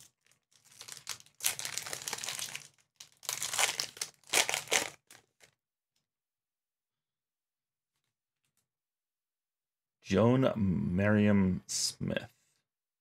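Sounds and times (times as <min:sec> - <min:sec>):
wrapper tearing and crinkling: 0:00.0 - 0:05.6.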